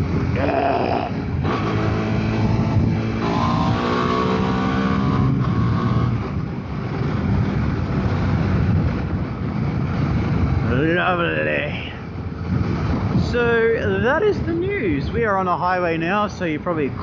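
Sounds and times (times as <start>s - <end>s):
motorcycle engine at speed: 0.0s - 10.9s
wind rushing over microphone: 0.0s - 17.0s.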